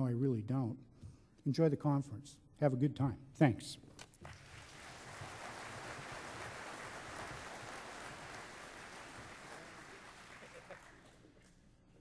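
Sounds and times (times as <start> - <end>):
audience applauding: 4.3 - 11.3.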